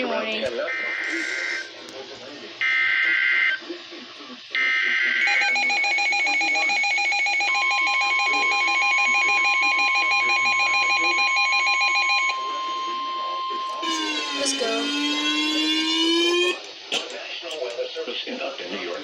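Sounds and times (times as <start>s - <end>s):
rapid pulsing alarm: 4.6s - 16.7s
steady warning tone: 5.2s - 16.7s
buzzy data bursts: 13.7s - 16.7s.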